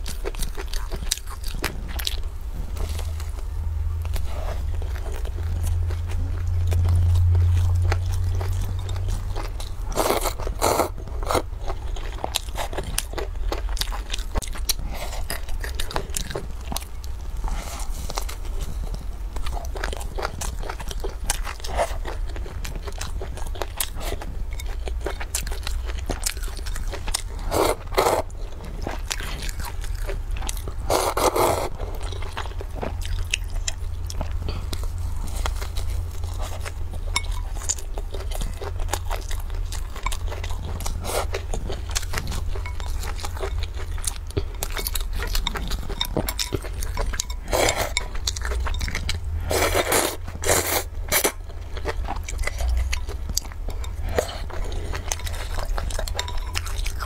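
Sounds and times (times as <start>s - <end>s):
chewing and crunching: 0.0s - 57.0s
low hum: 0.7s - 12.1s
slurping noodles: 30.8s - 31.8s.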